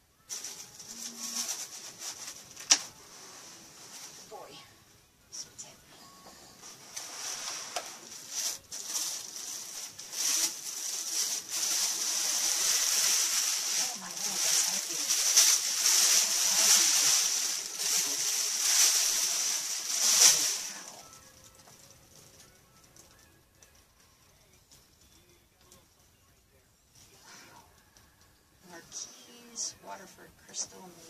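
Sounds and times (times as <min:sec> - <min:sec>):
plastic bags crinkling: 0:00.3 - 0:04.3, 0:06.7 - 0:23.7.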